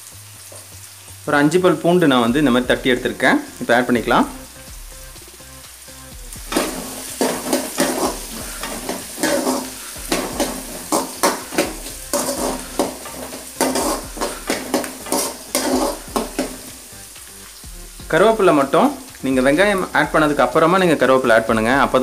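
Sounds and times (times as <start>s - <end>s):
food sizzling in hot oil: 0.0s - 22.0s
metal spatula scraping a pan: 6.4s - 17.3s.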